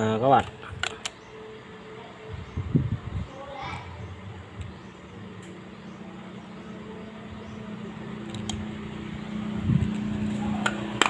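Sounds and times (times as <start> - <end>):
low motor hum: 0.0 - 11.0.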